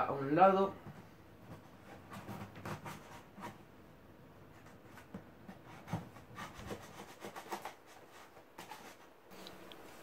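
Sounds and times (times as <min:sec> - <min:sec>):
scissors cutting cardboard: 0:01.6 - 0:03.6, 0:04.6 - 0:09.1.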